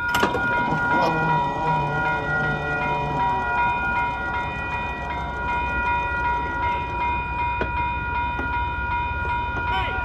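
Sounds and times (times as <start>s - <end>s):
railroad crossing bell ringing: 0.0s - 10.0s
train horn: 0.5s - 5.3s.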